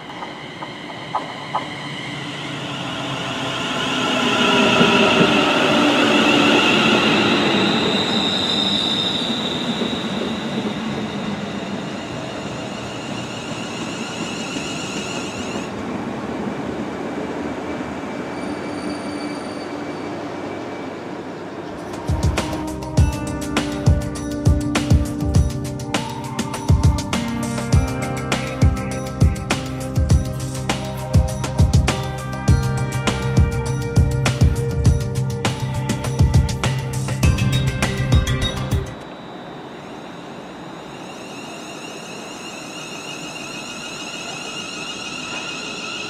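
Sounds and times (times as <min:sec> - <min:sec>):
electric train arriving and braking: 0:00.0 - 0:46.0
train motor whine: 0:37.5 - 0:46.0.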